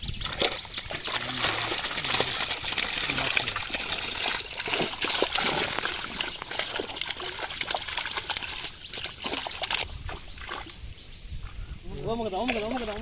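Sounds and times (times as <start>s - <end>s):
water splashing and trickling: 0.0s - 13.0s
fish thrashing in net: 0.2s - 9.9s.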